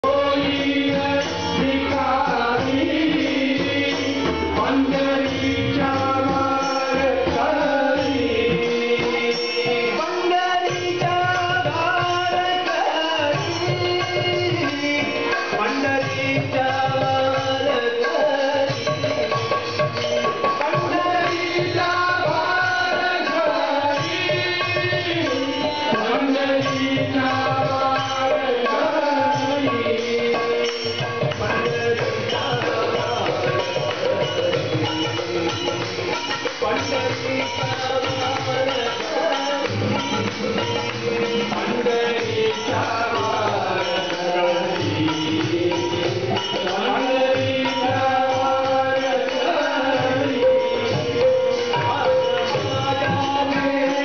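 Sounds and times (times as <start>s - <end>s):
group singing devotional song: 0.0s - 11.1s, 20.3s - 54.0s
harmonium melody: 0.0s - 54.0s.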